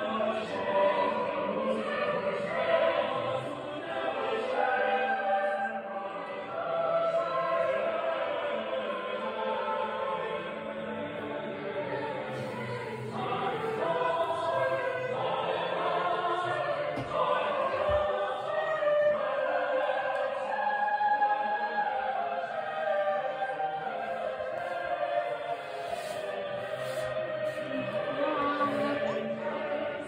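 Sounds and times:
choir singing held notes: 0.0 - 30.0.

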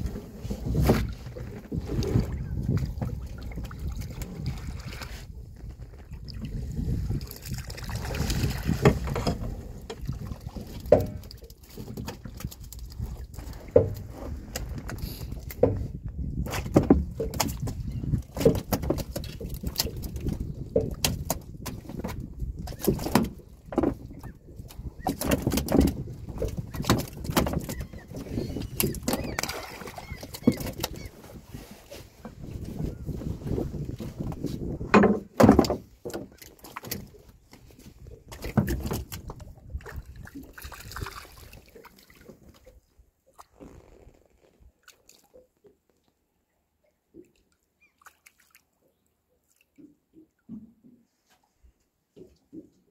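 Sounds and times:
water splashing and dripping: 5.9 - 14.0, 16.6 - 31.1, 35.5 - 42.8, 47.1 - 50.6.

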